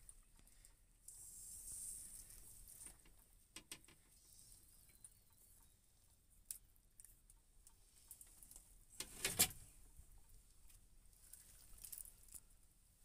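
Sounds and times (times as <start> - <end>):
fishing hook clicks and rustles: 10.7 - 12.5.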